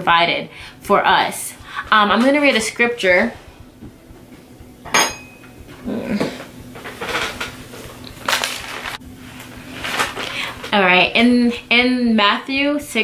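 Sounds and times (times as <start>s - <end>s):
hard clack with ring: 4.8s - 5.6s.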